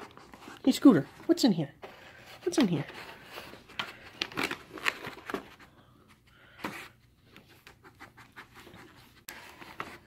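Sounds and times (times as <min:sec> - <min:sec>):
rustling of wrapped treats: 0:00.0 - 0:07.2.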